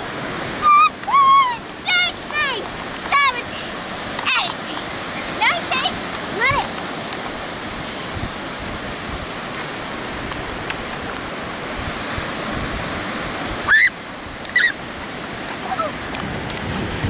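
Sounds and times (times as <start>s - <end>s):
ocean surf: 0.0s - 17.0s
wind on microphone: 0.0s - 17.0s
high-pitched cries: 13.7s - 14.8s.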